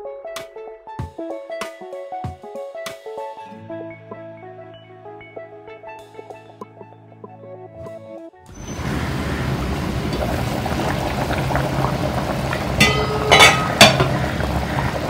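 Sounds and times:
curry bubbling in a pan: 8.6s - 15.0s.

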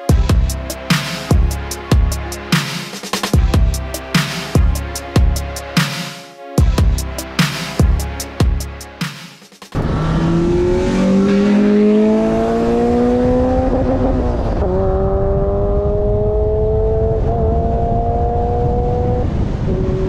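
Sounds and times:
car engine accelerating: 9.7s - 20.0s
tyre and road noise: 9.7s - 20.0s.

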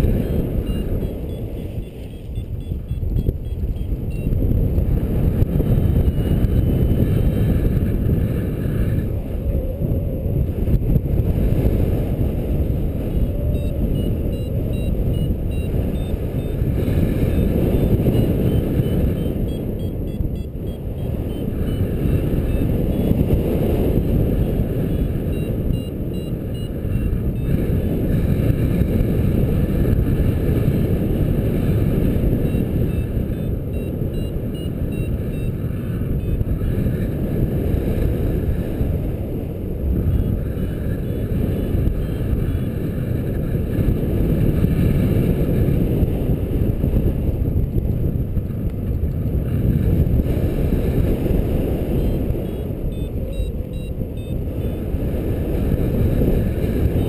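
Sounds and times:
short high beeps: 0.0s - 4.4s, 13.5s - 16.6s, 17.2s - 23.2s, 24.9s - 27.6s, 32.4s - 36.4s, 51.9s - 54.8s
wind rushing over microphone: 0.0s - 57.0s.

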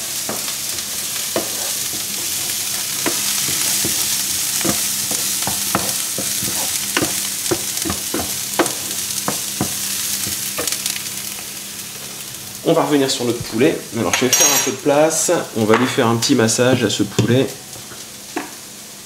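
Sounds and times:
food sizzling in a frying pan: 0.0s - 19.0s
wooden spatula scraping a pan: 0.2s - 9.8s.

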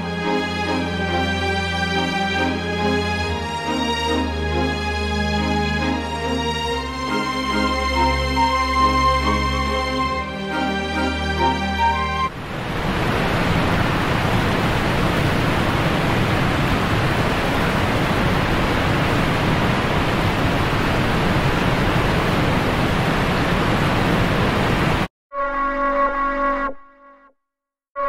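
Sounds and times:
music: 0.0s - 12.3s
steady rushing noise: 12.3s - 25.1s.

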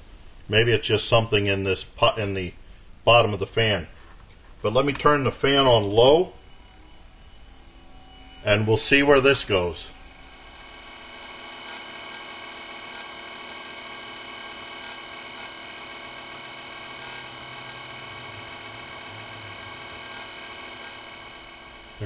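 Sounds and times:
blower fan whirring: 6.6s - 22.0s.

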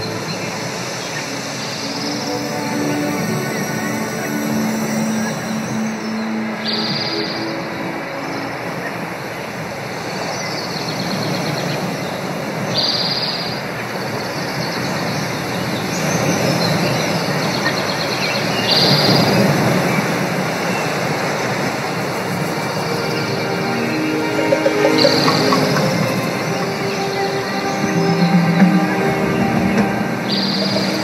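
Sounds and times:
steady rushing noise: 0.0s - 6.8s, 19.3s - 28.7s
held music tones: 22.5s - 31.0s
high bird trills: 22.8s - 27.9s.

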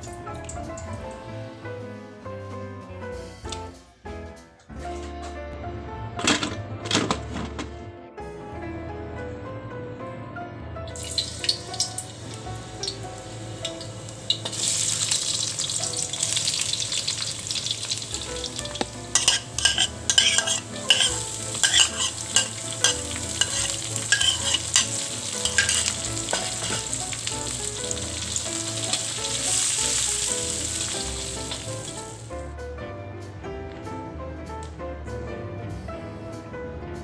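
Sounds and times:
garlic sizzling in hot oil: 11.0s - 32.4s
utensil scraping metal wok: 11.1s - 32.3s.

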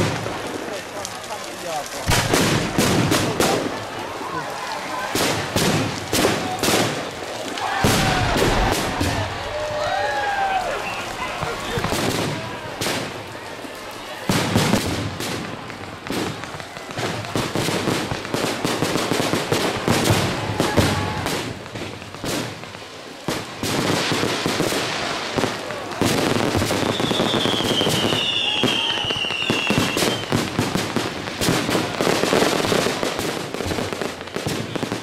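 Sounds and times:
firework shells bursting: 0.0s - 9.5s
firework crackles: 0.0s - 35.0s
falling firework whistle: 26.0s - 30.5s.

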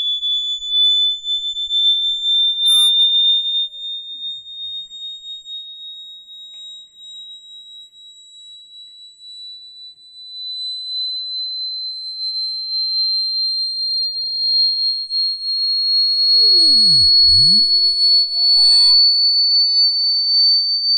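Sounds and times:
high sine tone rising: 2.7s - 2.9s, 14.6s - 20.9s.

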